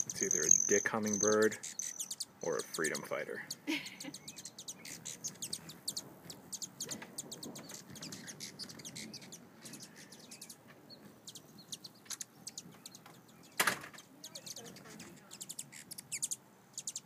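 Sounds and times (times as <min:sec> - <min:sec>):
hummingbird chip notes: 0:00.0 - 0:10.6.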